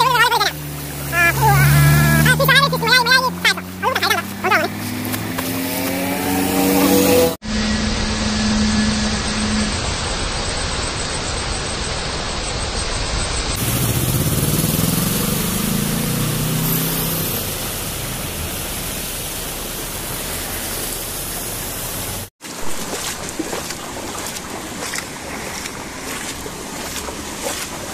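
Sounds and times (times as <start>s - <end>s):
heavy rain on flooded road: 0.0s - 5.9s, 13.6s - 22.3s
van engine driving through water: 0.0s - 7.3s, 13.6s - 27.9s.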